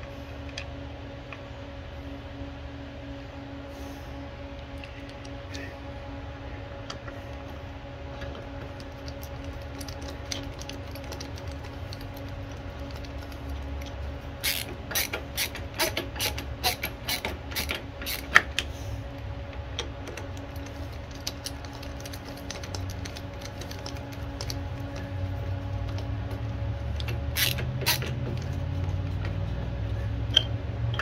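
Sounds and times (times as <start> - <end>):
steady low hum: 0.0 - 31.0
screwdriver ratcheting clicks: 27.0 - 28.5.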